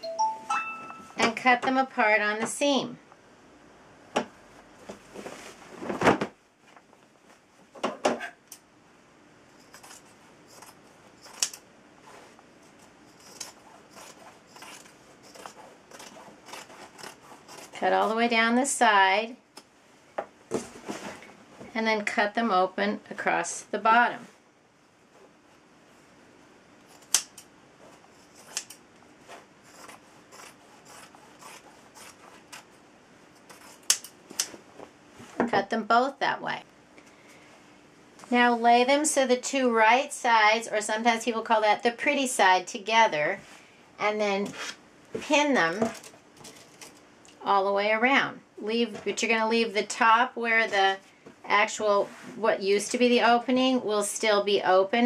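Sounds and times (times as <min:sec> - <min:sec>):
fabric rustling: 0:04.8 - 0:07.6
scissors snipping fabric: 0:09.7 - 0:11.6, 0:13.2 - 0:17.8, 0:26.9 - 0:27.4, 0:28.4 - 0:28.8, 0:29.7 - 0:32.7, 0:33.4 - 0:34.5.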